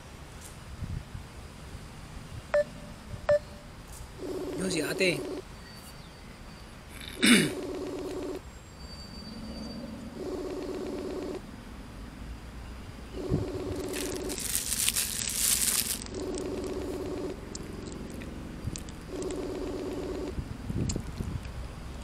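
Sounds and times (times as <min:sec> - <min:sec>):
phone ringback tone: 0:04.2 - 0:05.4, 0:07.4 - 0:08.4, 0:10.1 - 0:11.4, 0:13.2 - 0:14.4, 0:16.0 - 0:17.5, 0:19.1 - 0:20.4
plastic bag crinkling: 0:13.6 - 0:17.0.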